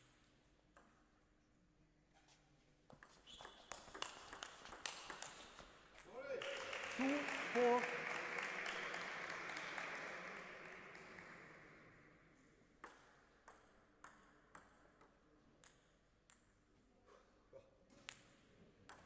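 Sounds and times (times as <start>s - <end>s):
table tennis ball bouncing: 0.7s - 1.0s, 2.9s - 6.1s, 12.8s - 16.5s
applause: 6.2s - 12.3s.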